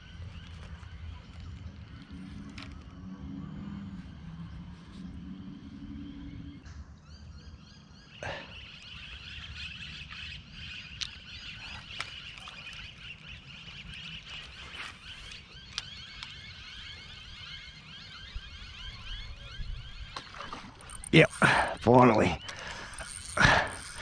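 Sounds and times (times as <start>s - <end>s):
fishing reel clicks and taps: 20.8s - 24.0s.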